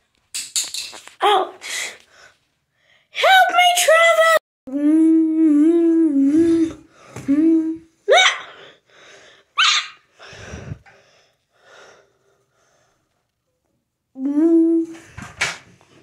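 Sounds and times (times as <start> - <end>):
child making play sound effects: 1.2 - 2.0, 3.2 - 8.6.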